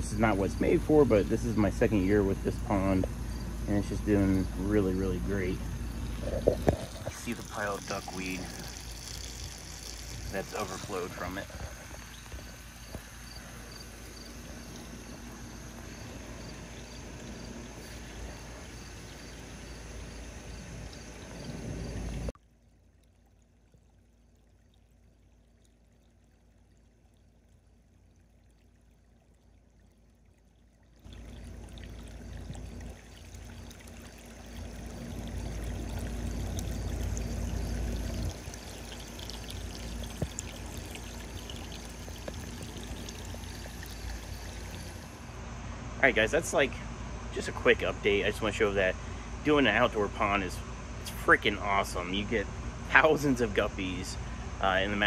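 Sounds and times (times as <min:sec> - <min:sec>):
faint hiss: 0:00.0 - 0:22.3
water pouring into pond: 0:00.0 - 0:45.3.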